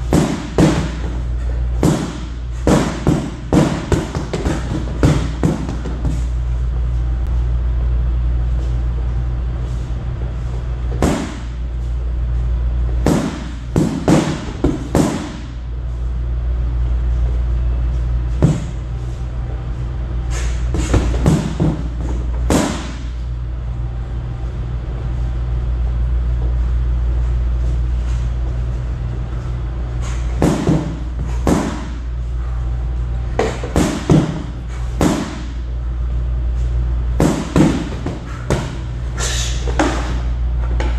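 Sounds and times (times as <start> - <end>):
stick smacking punching bag: 0.0 - 6.3, 10.9 - 11.6, 12.9 - 15.6, 18.3 - 18.8, 20.3 - 23.2, 30.0 - 32.1, 33.3 - 35.7, 37.2 - 40.9
steady low hum: 0.0 - 40.9.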